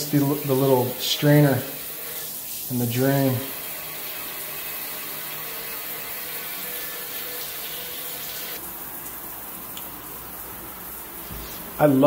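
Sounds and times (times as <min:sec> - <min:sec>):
shower water running into drain: 0:00.0 - 0:12.0.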